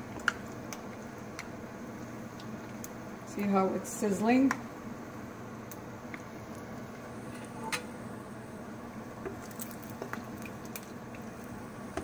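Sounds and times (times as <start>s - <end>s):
deep frying in oil: 0.0s - 12.0s
oil popping and crackling: 9.3s - 12.0s.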